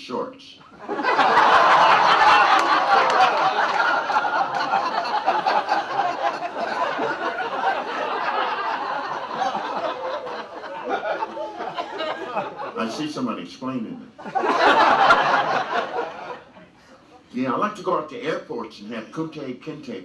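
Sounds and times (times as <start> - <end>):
audience laughing: 0.8 - 13.0, 14.2 - 16.7.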